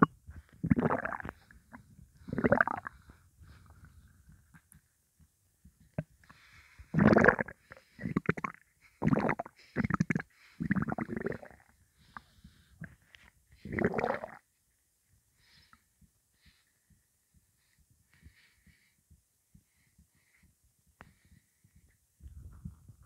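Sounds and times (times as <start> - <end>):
stomach rumbling and gurgling: 0.0 - 14.6, 19.5 - 23.0.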